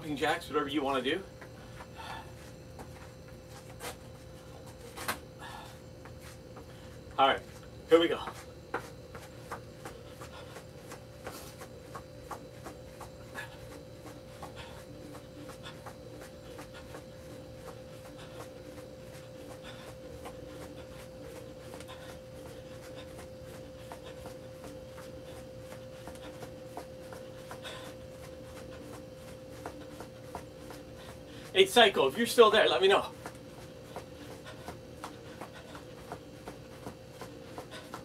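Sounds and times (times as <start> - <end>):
steady high hum: 0.0 - 38.0
light footfalls on floor: 7.4 - 31.2.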